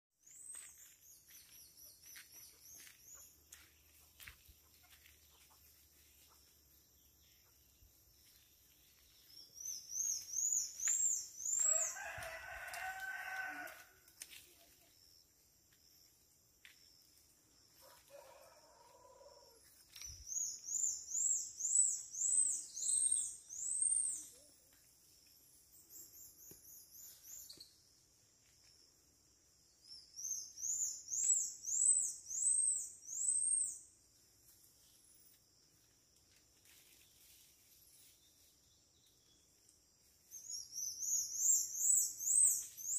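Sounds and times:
rooster crowing: 11.6s - 14.1s, 17.8s - 19.6s.

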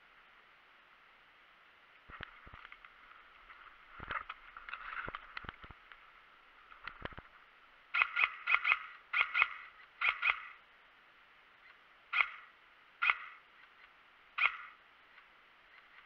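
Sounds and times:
twigs and brush rustling: 2.0s - 10.4s
sharp call-like cries: 7.9s - 10.6s, 11.6s - 14.8s.

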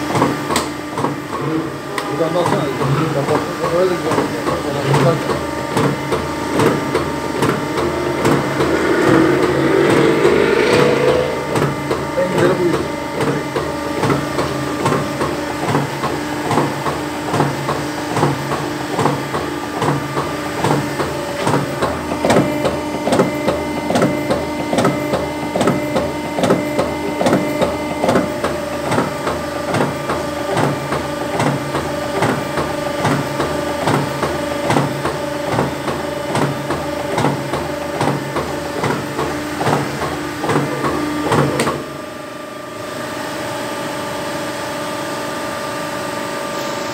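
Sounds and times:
hydraulic pump humming: 0.0s - 19.2s.

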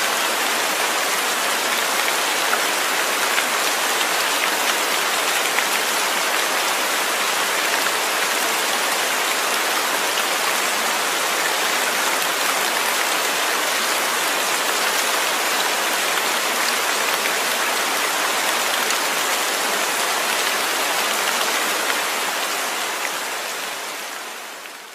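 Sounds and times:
steady rain: 0.0s - 24.9s.

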